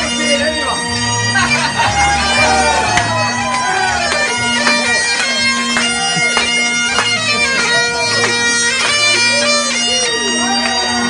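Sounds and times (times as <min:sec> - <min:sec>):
bagpipes playing a tune: 0:00.0 - 0:11.0.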